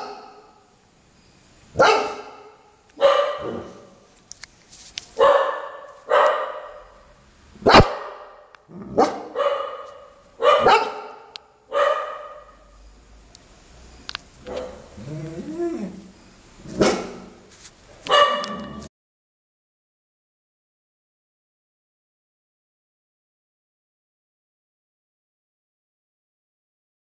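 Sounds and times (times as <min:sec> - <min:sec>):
dog barking: 0:00.0 - 0:00.6, 0:01.8 - 0:04.0, 0:05.2 - 0:12.7, 0:14.4 - 0:15.0, 0:16.7 - 0:17.4, 0:18.0 - 0:18.9.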